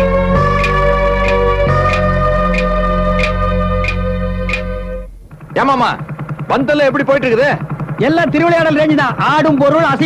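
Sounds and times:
low drone: 0:00.0 - 0:06.6
organ-like keyboard chords: 0:00.0 - 0:10.0
light percussive tick: 0:00.6 - 0:04.7.

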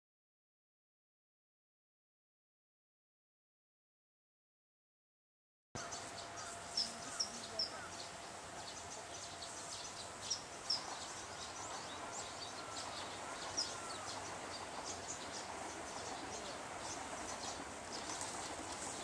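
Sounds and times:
small birds chirping: 0:05.8 - 0:19.0.

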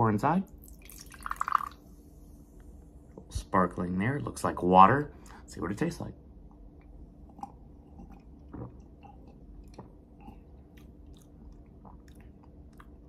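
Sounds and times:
person sipping and swallowing: 0:07.2 - 0:13.0
wet lip and tongue clicks: 0:07.4 - 0:13.0.

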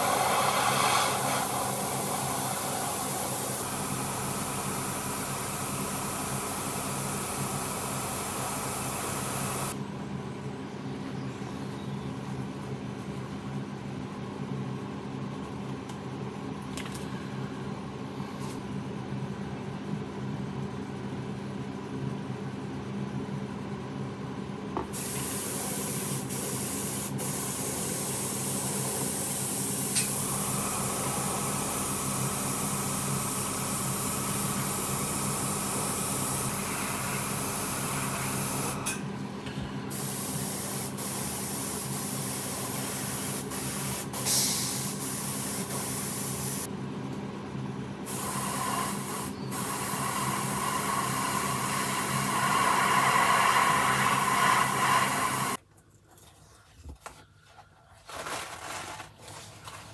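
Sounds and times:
airbrush spraying hiss: 0:00.0 - 0:09.8, 0:25.0 - 0:30.4, 0:39.9 - 0:46.7, 0:48.1 - 0:55.6.

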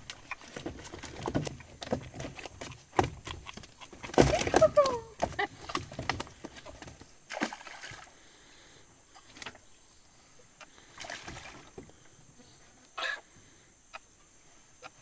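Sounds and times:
fish splashing into water: 0:07.3 - 0:08.2, 0:11.0 - 0:11.8.

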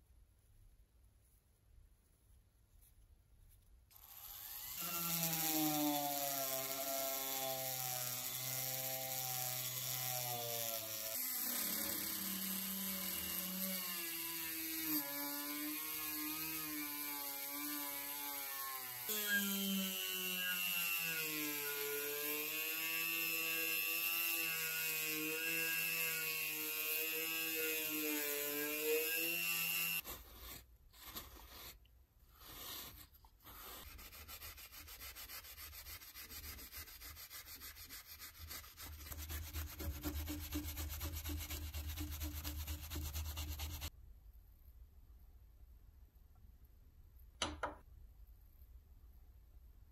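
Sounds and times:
rotary tool whining: 0:04.0 - 0:13.8
tissue rubbing on metal disc: 0:33.6 - 0:43.9.

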